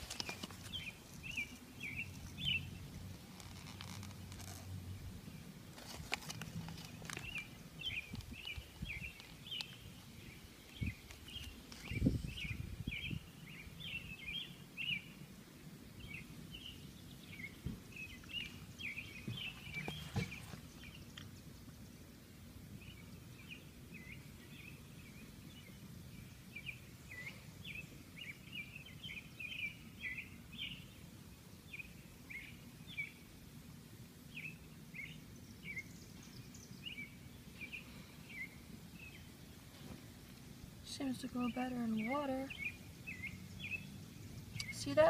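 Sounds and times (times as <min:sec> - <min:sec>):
handling knocks and rustles: 0:00.0 - 0:01.6, 0:19.2 - 0:20.7
bird chirping: 0:00.0 - 0:15.2, 0:16.0 - 0:22.0, 0:22.8 - 0:33.2, 0:34.3 - 0:39.8, 0:40.6 - 0:45.0.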